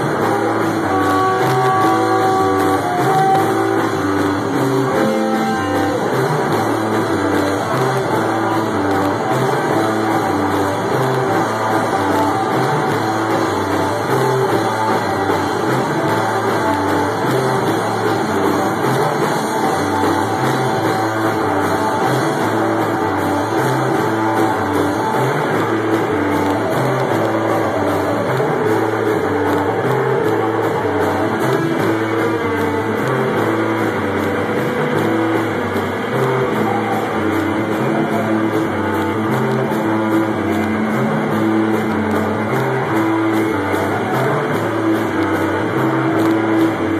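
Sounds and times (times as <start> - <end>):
drum kit: 0.0 - 46.9
guitar: 0.0 - 46.9
rock band playing live: 0.0 - 46.9.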